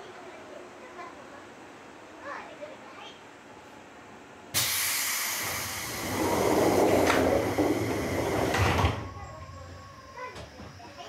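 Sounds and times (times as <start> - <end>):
train door compressed-air hiss: 4.5 - 9.2.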